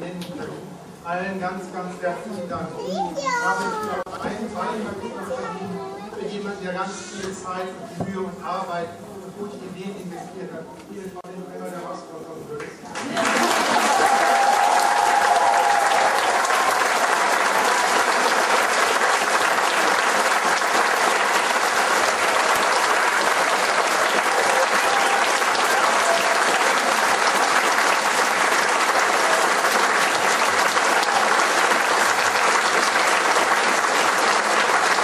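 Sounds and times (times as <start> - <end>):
audience applauding: 12.9 - 35.0.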